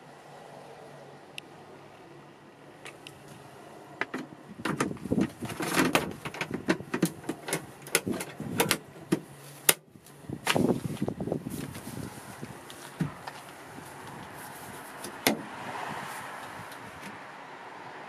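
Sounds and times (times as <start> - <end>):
knocks and clicks on plastic cover: 4.0 - 9.8
carpet rustling: 4.7 - 15.4.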